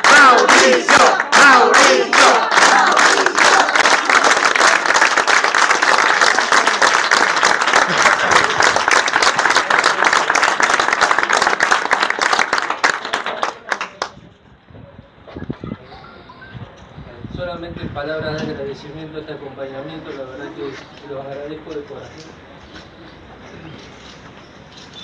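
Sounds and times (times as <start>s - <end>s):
crowd applauding: 0.0s - 14.2s.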